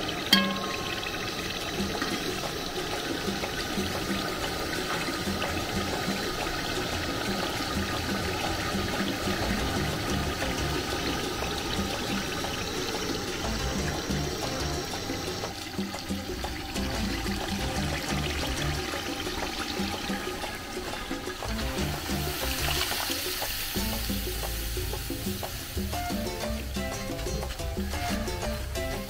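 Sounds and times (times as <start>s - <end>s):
liquid pouring and trickling: 0.0s - 29.0s
sharp ringing knock: 0.3s - 1.5s.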